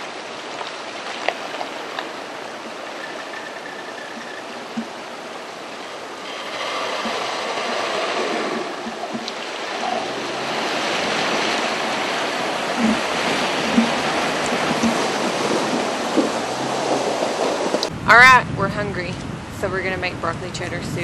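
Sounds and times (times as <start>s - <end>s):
river water rushing over rocks: 0.0s - 17.9s
vehicle splashing through river: 6.1s - 17.9s.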